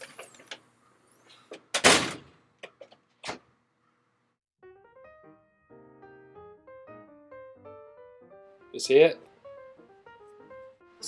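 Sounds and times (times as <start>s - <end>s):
storm door slamming: 1.7s - 2.4s.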